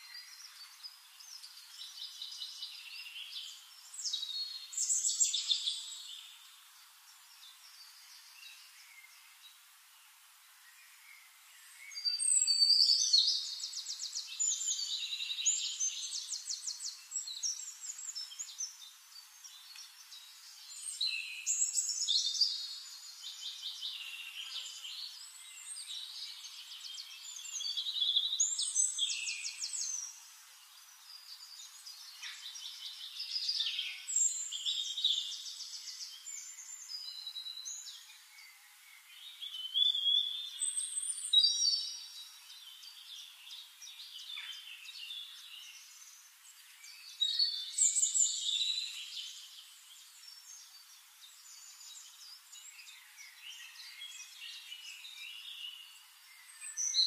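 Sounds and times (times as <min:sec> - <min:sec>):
songbirds chirping and trilling: 0:00.0 - 0:57.0.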